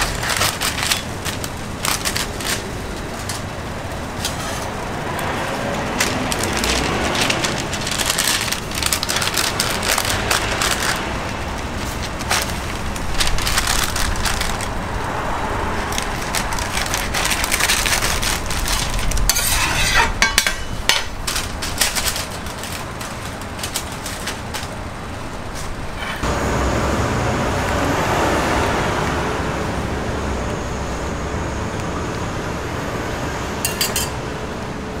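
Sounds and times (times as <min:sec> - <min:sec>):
paper crinkling and rustling: 0:00.0 - 0:26.2
steady background noise: 0:00.0 - 0:35.0.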